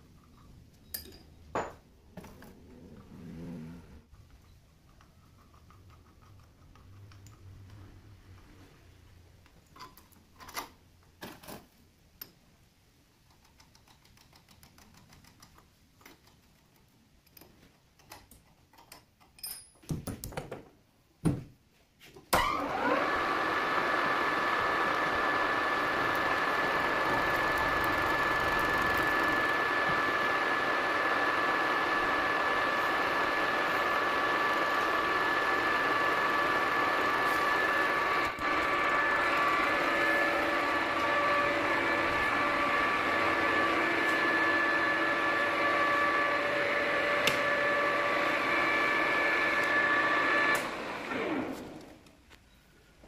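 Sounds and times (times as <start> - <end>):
metal lathe whining: 22.4 - 51.9.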